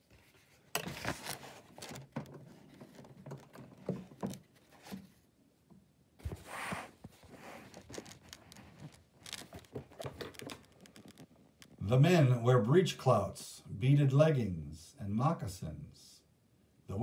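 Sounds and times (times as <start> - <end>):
paper rustling and scraping: 0.0 - 5.2, 6.2 - 11.4
sharp clicks and knocks: 7.8 - 11.8.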